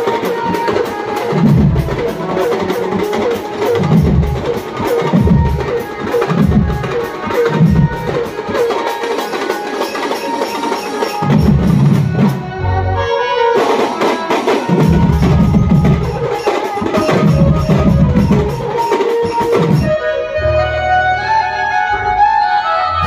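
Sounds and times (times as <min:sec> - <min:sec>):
barrel drums fast rhythm: 0:00.0 - 0:12.5, 0:13.6 - 0:20.0
deep drum thumps: 0:01.4 - 0:02.2, 0:03.8 - 0:04.5, 0:06.4 - 0:07.0, 0:14.7 - 0:16.2.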